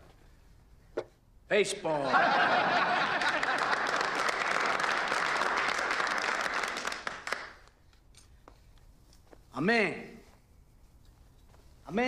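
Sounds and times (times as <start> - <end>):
men applauding: 2.8 - 7.8.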